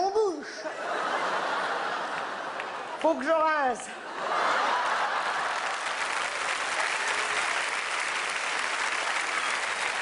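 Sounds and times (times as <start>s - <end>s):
audience applauding: 1.8s - 3.2s, 4.3s - 10.0s.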